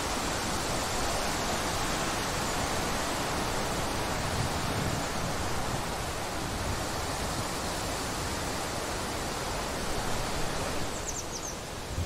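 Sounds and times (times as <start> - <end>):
wind rushing through trees: 0.0 - 12.0
bird chirping: 10.9 - 11.6.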